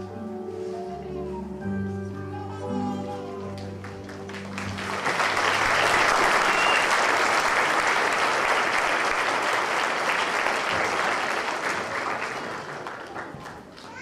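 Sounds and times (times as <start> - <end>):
audience applauding: 3.4 - 14.0.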